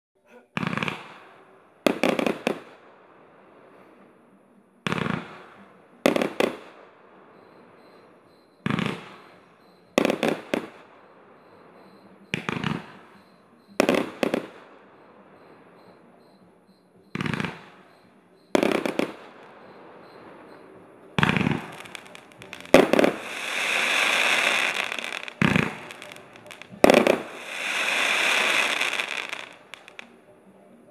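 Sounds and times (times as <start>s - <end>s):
firework bangs: 0.6s - 2.9s, 4.9s - 8.0s, 8.6s - 16.1s, 17.1s - 30.2s
firework hissing: 21.1s - 30.1s.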